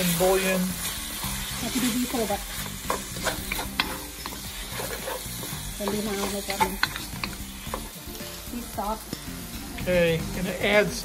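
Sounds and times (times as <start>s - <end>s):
wooden spatula scraping a wok: 0.0s - 8.1s
chicken sizzling in sauce: 0.0s - 11.0s.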